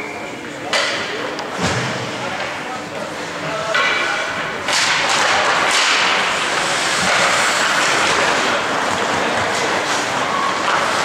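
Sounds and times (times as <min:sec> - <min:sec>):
hockey stick hitting puck: 0:03.7 - 0:11.0
skates scraping on ice: 0:04.8 - 0:11.0.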